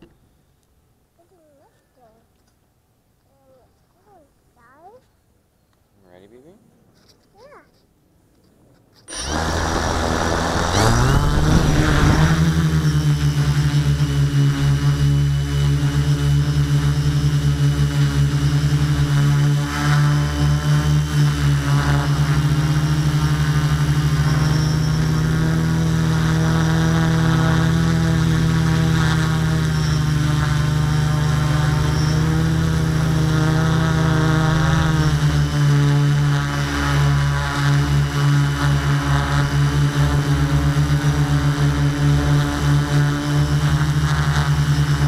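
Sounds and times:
drone motors humming: 9.1s - 45.0s.

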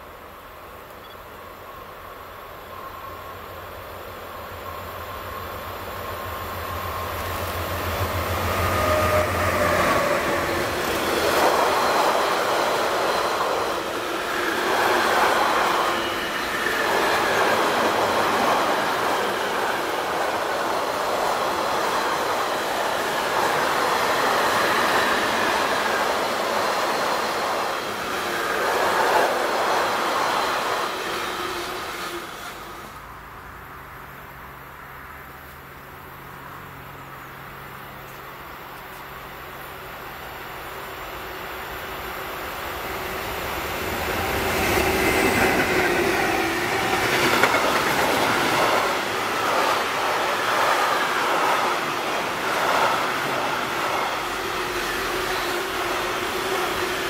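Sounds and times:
locomotive hum: 0.3s - 34.2s, 35.6s - 57.0s
train wagons rolling rumble: 43.0s - 57.0s.

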